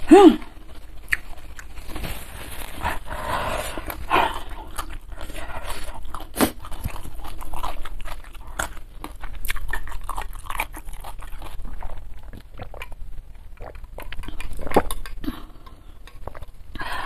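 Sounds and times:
chewing with wet mouth clicks: 0.7s - 2.0s, 3.8s - 16.7s
sniffling: 2.7s - 6.5s.

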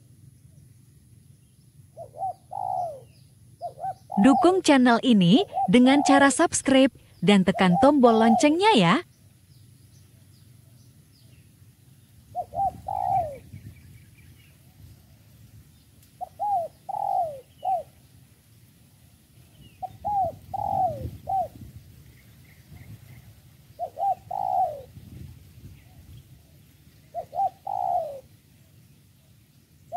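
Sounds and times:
dove cooing: 1.9s - 9.0s, 12.3s - 13.7s, 16.2s - 18.0s, 19.5s - 21.8s, 22.7s - 25.2s, 25.8s - 28.8s.

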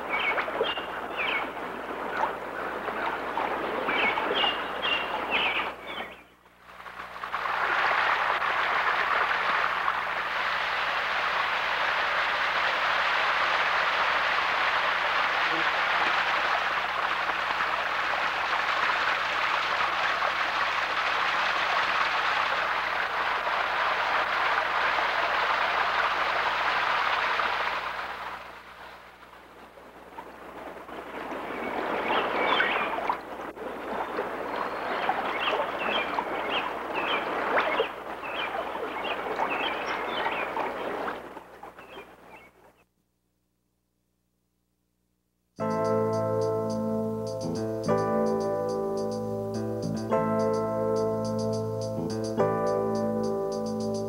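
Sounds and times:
stream water rushing: 0.0s - 6.1s, 6.7s - 42.3s.

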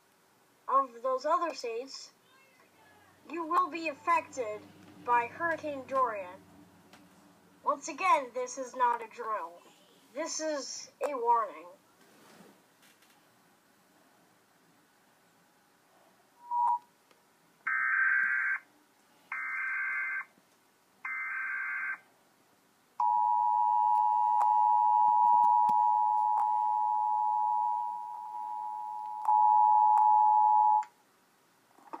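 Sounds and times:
short beep: 16.4s - 16.8s.

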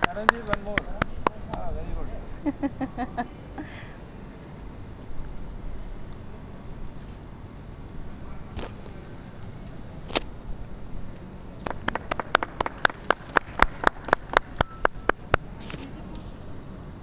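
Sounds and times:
run of sharp claps: 0.0s - 1.6s, 11.6s - 15.5s
hand clapping: 0.0s - 1.7s, 11.6s - 15.4s.

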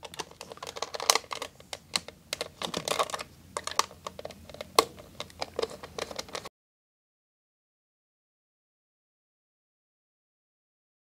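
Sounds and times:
screwdriver clicking on plastic: 0.0s - 6.5s.

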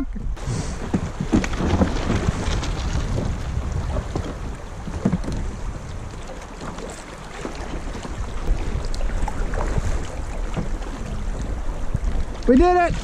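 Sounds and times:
water lapping against hull: 0.0s - 13.0s
wind rumbling on microphone: 0.0s - 13.0s
paddle blades splashing: 0.4s - 13.0s.

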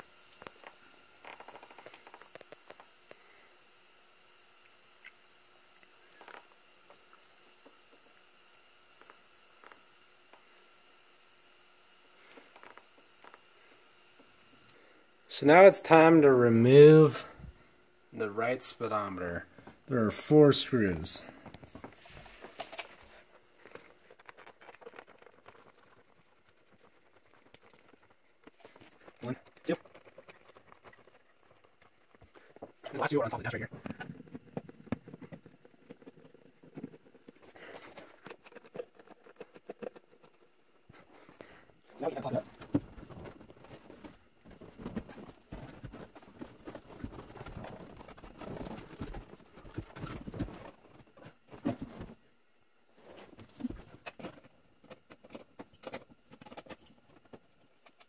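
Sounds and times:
faint clicks and scrapes of screws: 54.9s - 58.0s.

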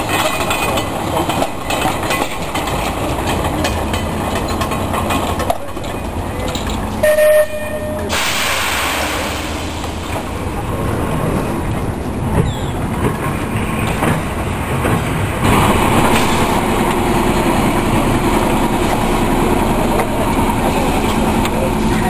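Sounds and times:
tram wheels rumbling on track: 0.0s - 22.0s
wheel squeal: 12.3s - 12.8s.

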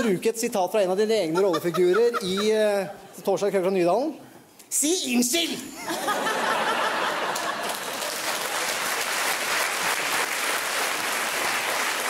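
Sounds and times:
studio audience applauding: 6.7s - 12.0s.

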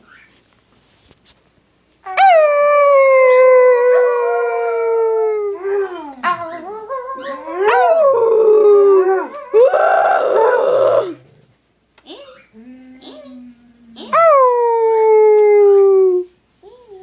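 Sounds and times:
dog howling: 2.1s - 11.3s.

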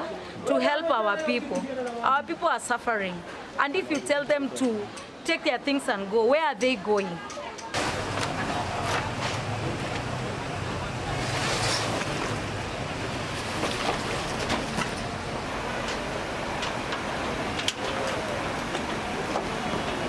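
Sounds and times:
floodwater rushing: 7.8s - 20.0s.

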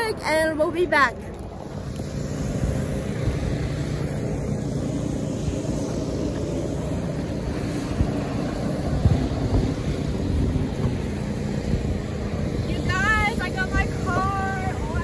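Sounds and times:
engine running drone: 0.0s - 15.0s.

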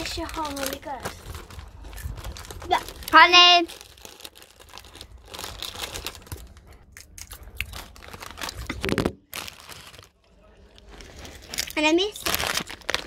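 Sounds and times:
crisps crunching: 0.0s - 13.0s.

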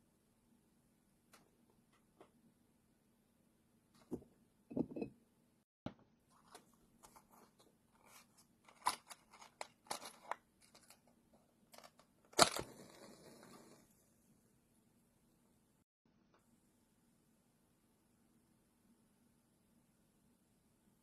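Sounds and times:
clicks and rustles of handling: 6.3s - 12.7s.

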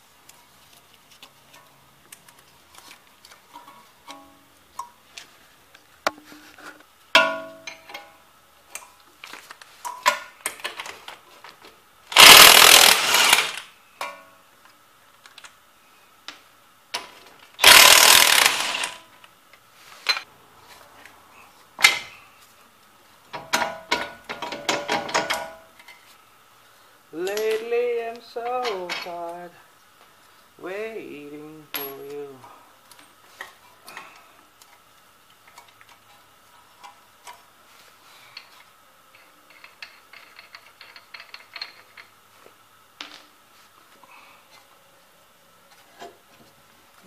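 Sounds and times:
impact wrench hammering: 12.2s - 14.2s, 17.6s - 19.0s.

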